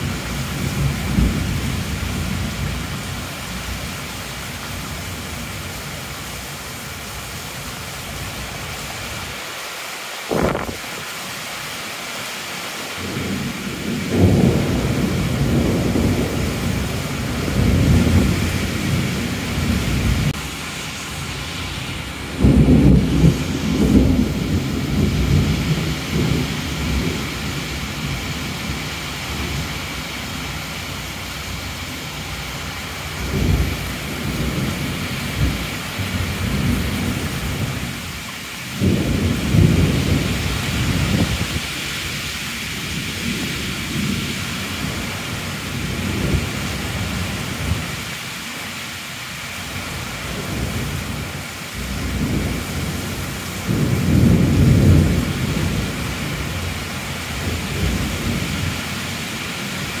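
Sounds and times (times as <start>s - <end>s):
heavy rain: 0.0s - 60.0s
thunder rolling: 10.3s - 10.9s, 13.0s - 20.4s, 22.0s - 29.6s, 38.8s - 41.7s.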